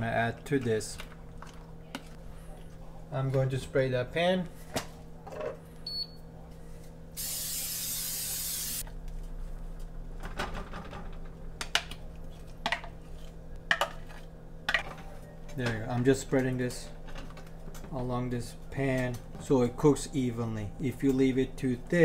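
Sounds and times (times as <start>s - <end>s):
aerosol spray hissing: 7.2s - 8.8s.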